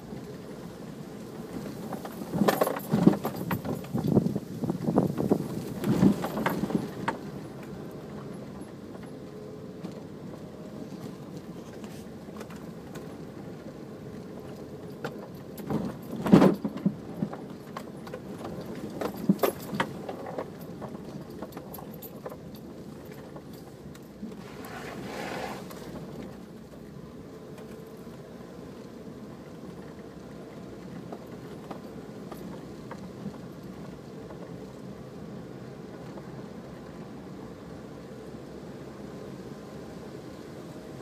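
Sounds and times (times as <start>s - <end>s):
off-road vehicle engine: 0.0s - 41.0s
rattling and jangling: 1.7s - 7.2s, 14.8s - 26.1s.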